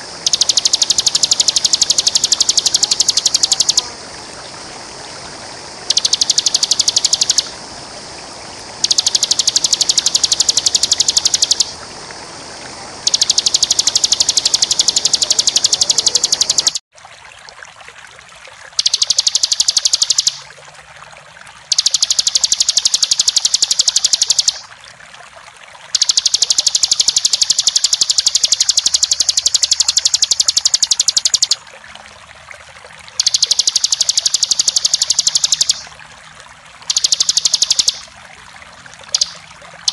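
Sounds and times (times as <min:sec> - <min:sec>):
water rushing: 0:00.0 - 0:39.9
bird singing high-pitched trill: 0:00.2 - 0:03.9, 0:05.9 - 0:07.5, 0:08.8 - 0:11.8, 0:13.1 - 0:16.8, 0:18.8 - 0:20.4, 0:21.7 - 0:24.6, 0:26.0 - 0:31.6, 0:33.2 - 0:35.9, 0:36.9 - 0:38.1, 0:39.1 - 0:39.9.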